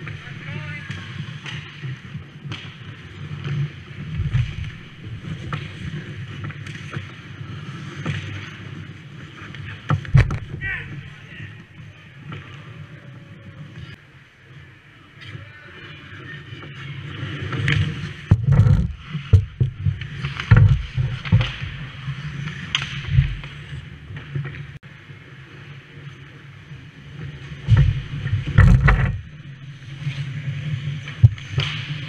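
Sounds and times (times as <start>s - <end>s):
hockey sticks and puck clacking: 0.0s - 12.9s, 15.2s - 24.8s, 27.2s - 32.0s
skates scraping ice: 0.0s - 32.0s
low hum: 27.5s - 30.2s.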